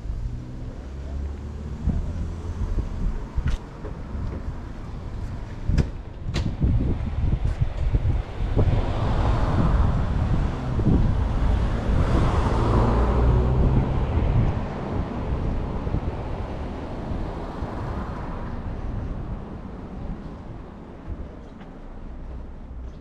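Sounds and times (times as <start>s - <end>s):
wind buffeting microphone: 1.7s - 23.0s
vehicle passing: 8.4s - 19.1s.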